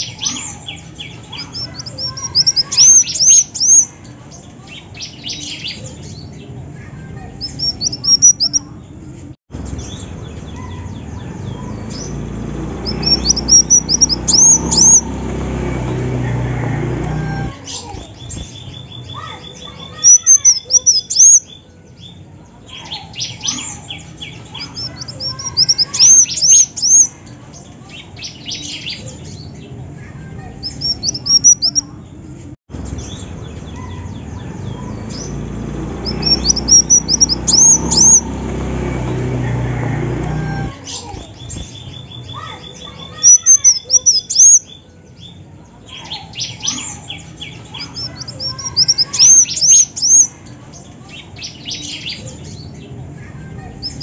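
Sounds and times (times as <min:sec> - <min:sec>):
bird calling in high chirps: 0:00.0 - 0:04.0, 0:07.4 - 0:08.7, 0:09.8 - 0:15.2, 0:17.2 - 0:21.7, 0:22.8 - 0:27.2, 0:30.6 - 0:31.9, 0:33.1 - 0:38.4, 0:40.3 - 0:44.9, 0:46.0 - 0:50.4.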